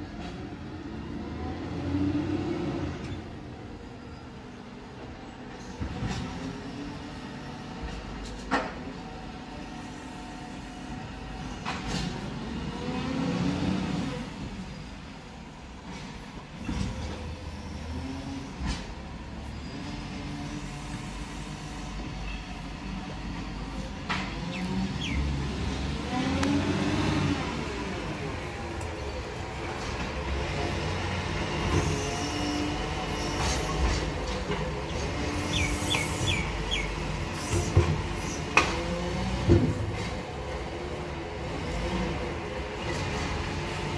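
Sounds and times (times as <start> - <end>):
diesel truck engine revving: 24.3 - 29.0.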